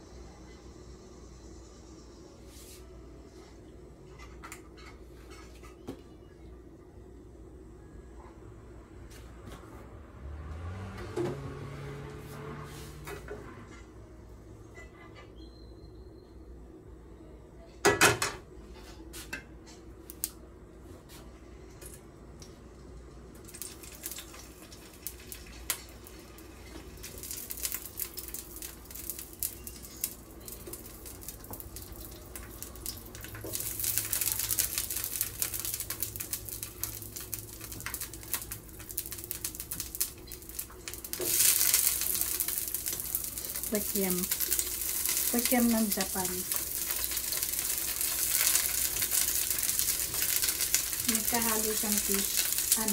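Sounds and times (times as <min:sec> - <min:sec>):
hot oil sizzling: 0:00.0 - 0:02.6, 0:23.2 - 0:52.9.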